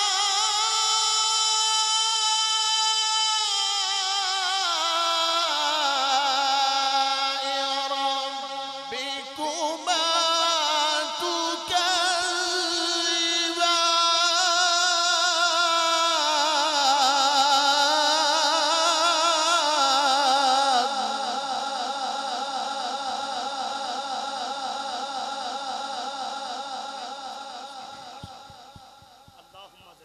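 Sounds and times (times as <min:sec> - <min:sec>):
man reciting melodically: 0:00.0 - 0:30.0.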